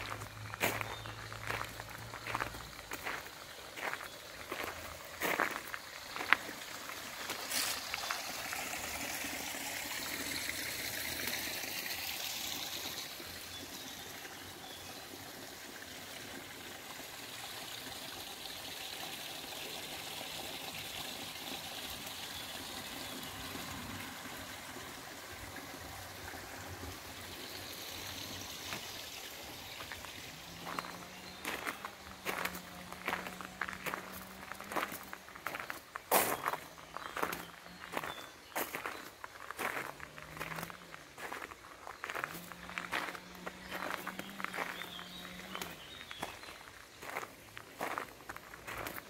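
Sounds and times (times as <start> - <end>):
footsteps: 0.0 - 6.6, 29.8 - 45.7
water running and trickling: 0.0 - 49.0.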